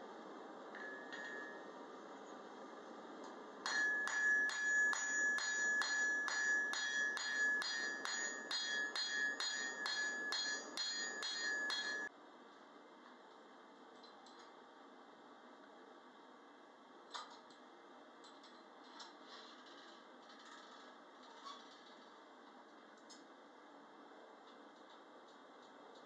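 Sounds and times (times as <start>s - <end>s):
hammer ringing on anvil: 0.8s - 1.7s, 3.7s - 12.1s.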